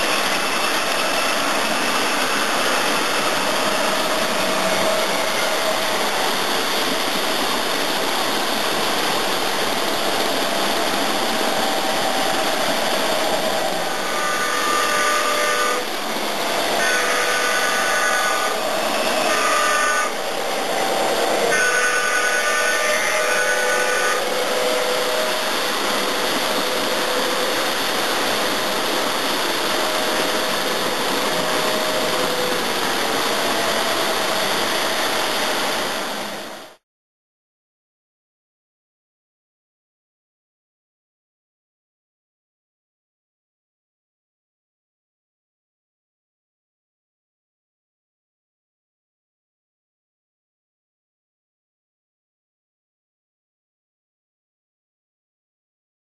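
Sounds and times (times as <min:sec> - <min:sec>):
model train whistle: 0:00.0 - 0:06.6, 0:10.4 - 0:35.9
steady loud hiss: 0:00.0 - 0:36.8.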